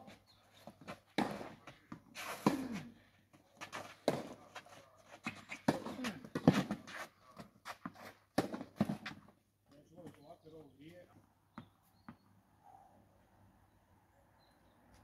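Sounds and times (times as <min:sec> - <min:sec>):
racket hitting tennis ball: 0:00.8 - 0:03.0, 0:03.6 - 0:07.1, 0:07.7 - 0:09.2
tennis ball bouncing: 0:05.2 - 0:07.1, 0:07.8 - 0:09.2.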